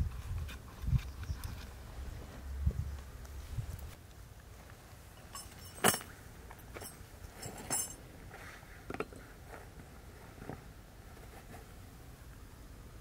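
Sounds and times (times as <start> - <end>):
metallic jingle: 5.2 - 6.1, 6.7 - 8.0.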